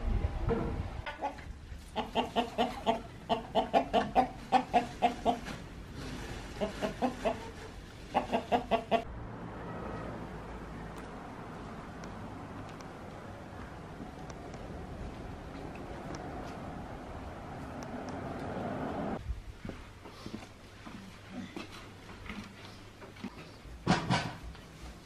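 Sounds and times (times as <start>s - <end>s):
chickens clucking: 1.0s - 5.7s, 6.3s - 9.1s.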